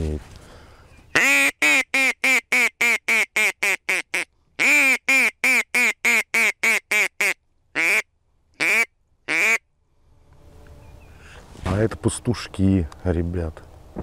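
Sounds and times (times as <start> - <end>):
duck call quacks: 1.2 - 8.0, 8.6 - 9.6.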